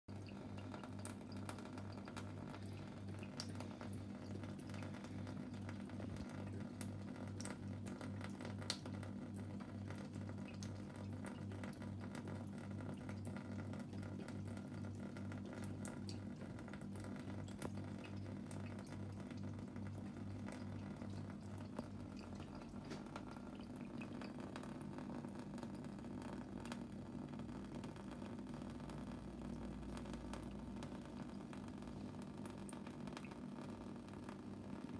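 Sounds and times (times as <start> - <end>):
water drops ticking: 0.1 - 26.8, 27.7 - 34.9
tap water trickling into sink: 0.1 - 34.9.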